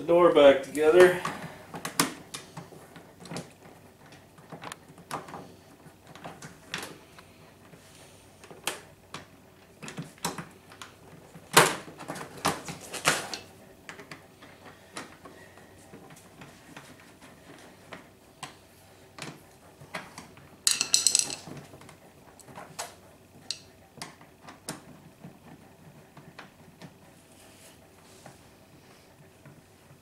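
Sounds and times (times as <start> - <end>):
tools being handled: 20.7 - 21.6.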